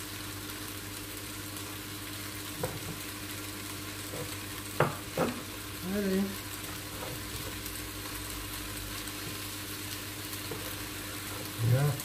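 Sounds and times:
steady hiss and low hum: 0.0s - 12.0s
knife tapping on board: 4.8s - 5.4s.

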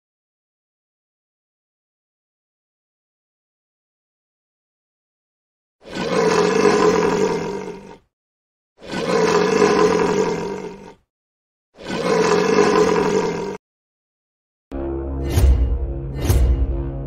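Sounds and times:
lion roaring: 5.8s - 8.1s, 8.8s - 11.1s, 11.8s - 13.6s.

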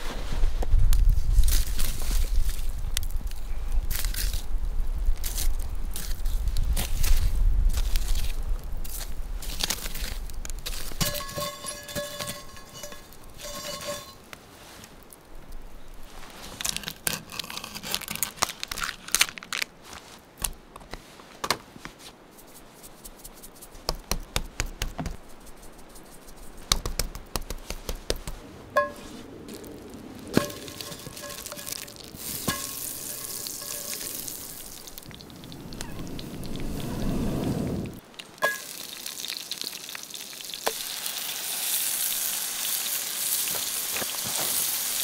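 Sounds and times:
campfire crackling and popping: 0.6s - 19.8s, 23.8s - 45.0s
oil sizzling in skillet: 11.0s - 14.2s, 30.4s - 45.0s.

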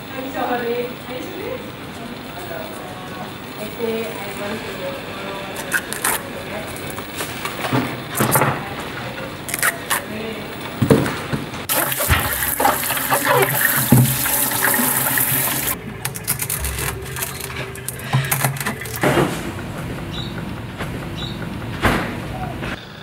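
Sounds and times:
water gushing in a sink: 11.7s - 15.8s.

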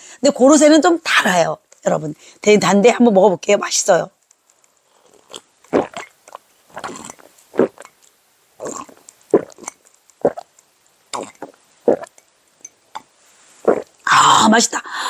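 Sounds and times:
person gulping swallows: 4.9s - 8.0s, 8.6s - 12.2s, 12.9s - 14.1s.

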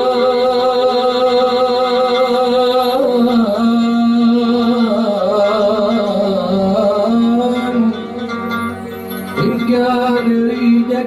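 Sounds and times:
man singing into microphone: 0.0s - 8.7s, 9.3s - 11.0s
musical accompaniment: 0.0s - 11.0s.

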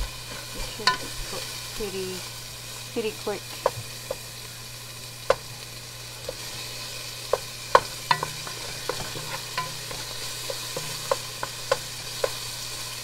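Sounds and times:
frying sizzle: 0.0s - 13.0s
wooden spoon scraping pan: 7.3s - 12.8s.

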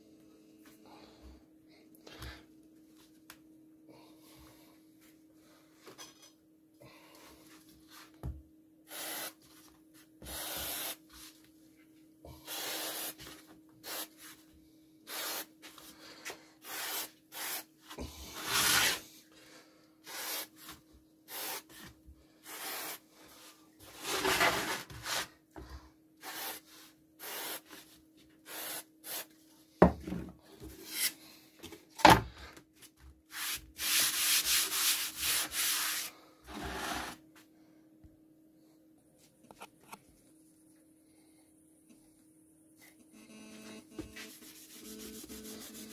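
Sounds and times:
faint steady hum: 0.0s - 45.9s
rubbing and scraping on wood: 23.9s - 25.3s.

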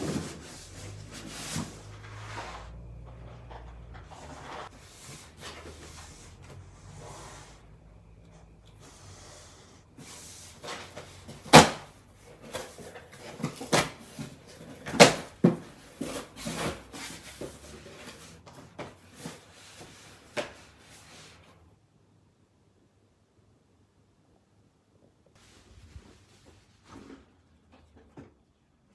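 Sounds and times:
cardboard rustling: 0.0s - 7.6s, 9.9s - 21.4s.

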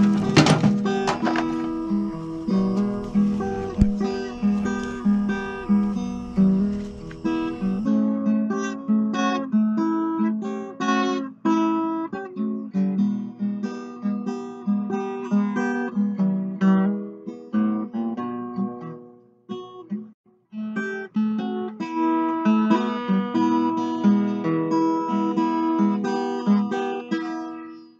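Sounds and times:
acoustic guitar music: 0.0s - 27.9s.

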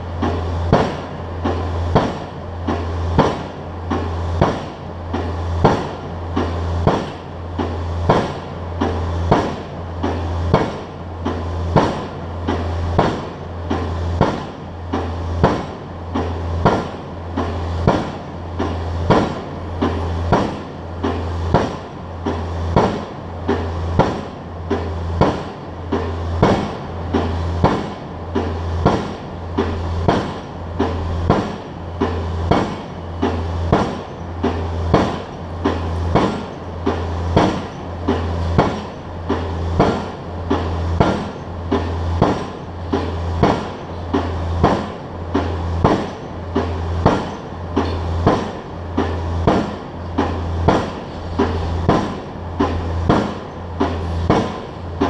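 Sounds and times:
low pulsing hum from rig: 0.0s - 55.0s
pile driver metallic blows: 0.0s - 55.0s.

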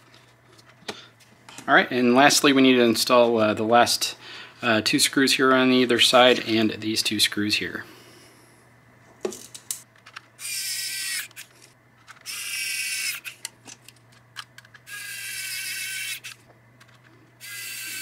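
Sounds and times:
electric screwdriver whirring: 10.4s - 11.5s, 12.2s - 13.4s, 14.9s - 16.4s, 17.4s - 18.0s.

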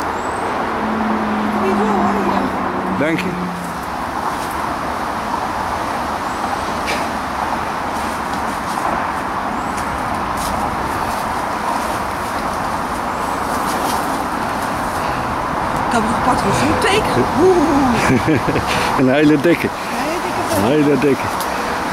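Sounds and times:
rushing outdoor noise: 0.0s - 21.9s
rustles and snaps in undergrowth: 7.9s - 15.0s.

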